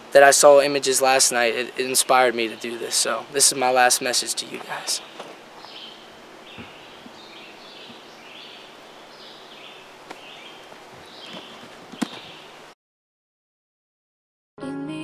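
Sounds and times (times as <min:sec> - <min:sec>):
small birds chirping: 0:00.2 - 0:12.7.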